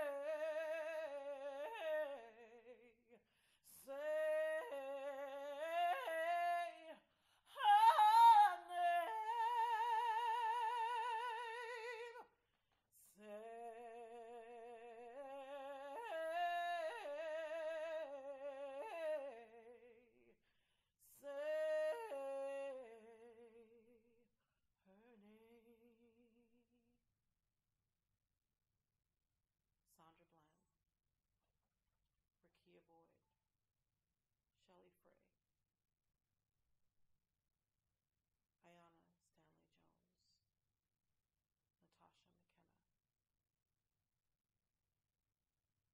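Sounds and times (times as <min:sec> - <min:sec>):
woman singing unaccompanied: 0:00.0 - 0:12.3, 0:13.0 - 0:20.3, 0:21.0 - 0:24.0.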